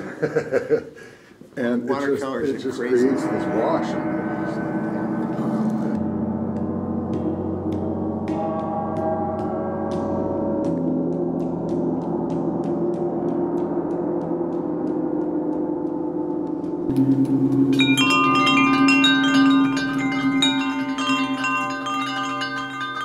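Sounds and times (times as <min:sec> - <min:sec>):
gongs ringing: 0:01.9 - 0:16.1, 0:16.7 - 0:23.0.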